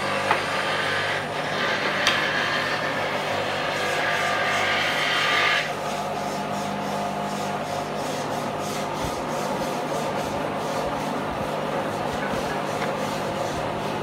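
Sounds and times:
wooden panels scraping on concrete: 0:00.2 - 0:06.5.

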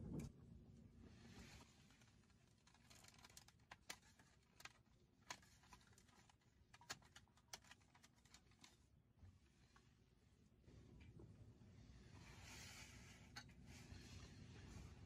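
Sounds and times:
plastic pack crackling: 0:01.9 - 0:08.8.

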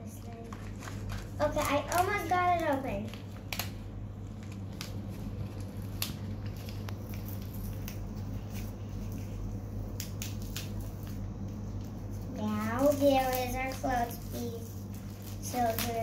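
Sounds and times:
steady low hum: 0:00.0 - 0:16.0
crinkly wrapper being pulled open: 0:00.2 - 0:12.2.

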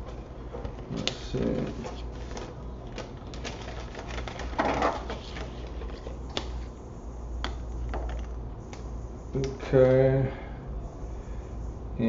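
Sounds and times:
paper rustling: 0:00.0 - 0:06.7.

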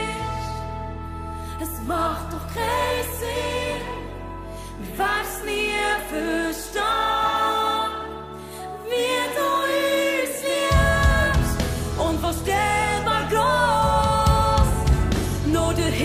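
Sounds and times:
low bass: 0:00.0 - 0:07.2, 0:10.7 - 0:16.0
person singing: 0:00.0 - 0:16.0
band accompaniment: 0:10.7 - 0:16.0.

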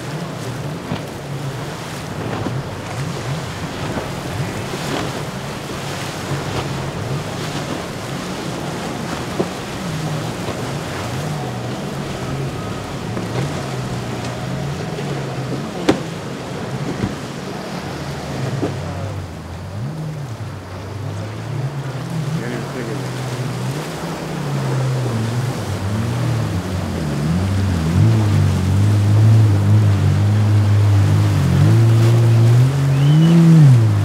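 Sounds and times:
outboard engines droning: 0:00.0 - 0:34.0
rushing water: 0:00.0 - 0:34.0
wind on microphone: 0:23.9 - 0:34.0.

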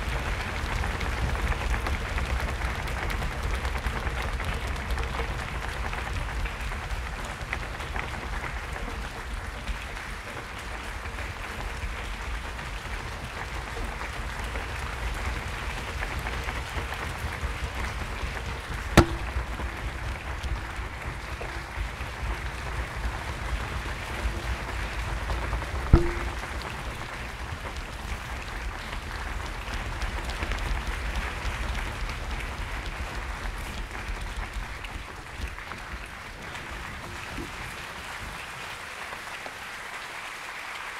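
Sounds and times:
audience applauding: 0:00.0 - 0:40.9
sharp knocks: 0:18.9 - 0:22.4, 0:25.9 - 0:27.2.

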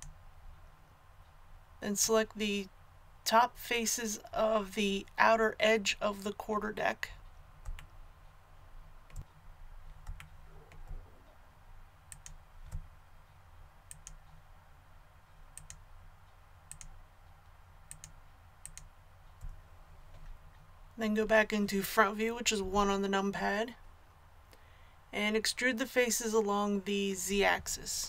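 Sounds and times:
computer mouse clicks: 0:12.1 - 0:12.9, 0:13.9 - 0:14.4, 0:15.5 - 0:15.8, 0:16.7 - 0:17.0, 0:17.9 - 0:20.7.

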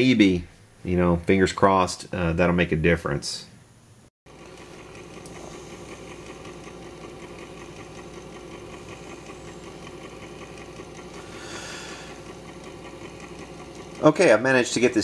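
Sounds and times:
motor hum: 0:04.3 - 0:15.0
turntable mechanism chatter: 0:04.3 - 0:15.0.

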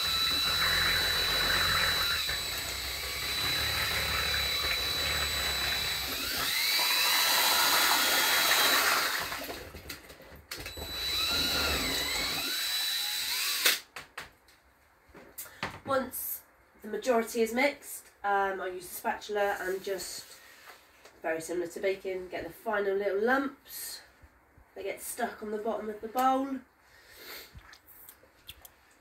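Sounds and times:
drill paddle mixer whining: 0:00.0 - 0:09.9, 0:10.5 - 0:13.8.

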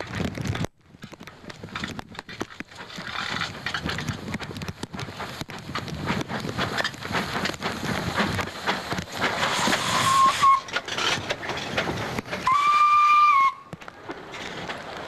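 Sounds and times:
train wheels clattering on rails: 0:00.0 - 0:15.0
steam whistle blasts: 0:09.8 - 0:10.7, 0:12.4 - 0:13.7.

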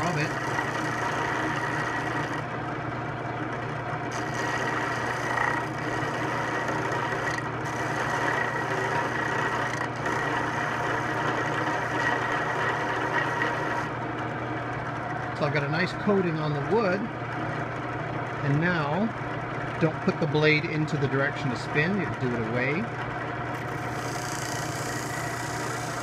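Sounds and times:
drill press motor humming: 0:00.0 - 0:26.0.

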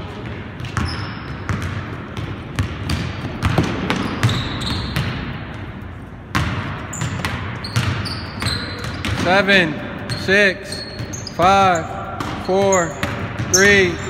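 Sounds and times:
sneakers squeaking: 0:00.0 - 0:14.0
basketball bouncing on wooden floor: 0:00.2 - 0:05.7, 0:06.3 - 0:09.4, 0:10.9 - 0:11.2, 0:12.2 - 0:14.0.

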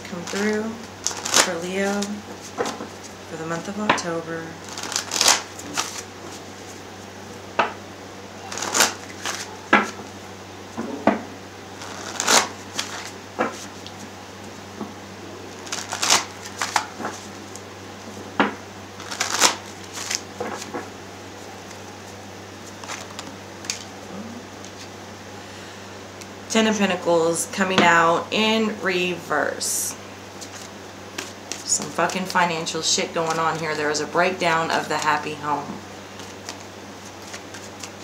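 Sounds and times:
cards being shuffled: 0:00.1 - 0:03.2, 0:04.6 - 0:06.8, 0:08.4 - 0:10.2, 0:11.8 - 0:14.1, 0:15.6 - 0:17.6, 0:19.0 - 0:24.0, 0:24.6 - 0:24.9, 0:30.3 - 0:35.2, 0:36.1 - 0:38.0.

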